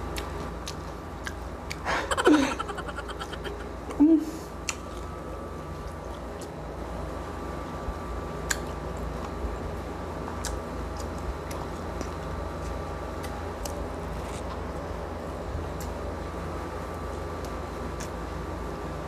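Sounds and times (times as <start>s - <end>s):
close chewing mouth sounds: 0.0s - 3.7s, 4.6s - 6.7s, 8.4s - 9.5s, 10.2s - 14.6s, 17.0s - 18.4s.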